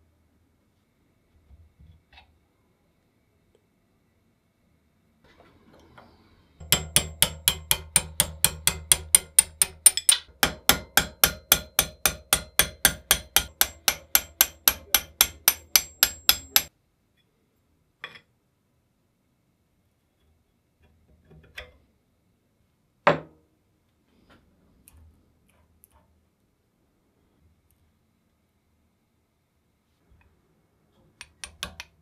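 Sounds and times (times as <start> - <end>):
hammer striking metal: 6.6 - 16.7.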